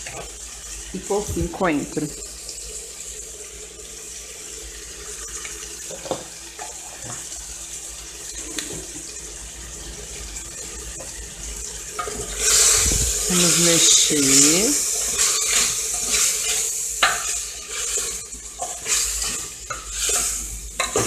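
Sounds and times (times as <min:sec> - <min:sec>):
meat sizzling in oil: 0:00.0 - 0:21.0.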